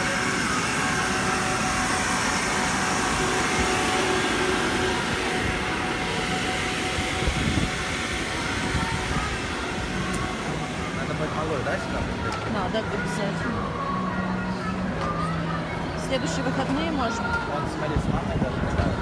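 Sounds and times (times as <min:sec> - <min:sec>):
electric air blowers whirring: 0:00.0 - 0:19.0.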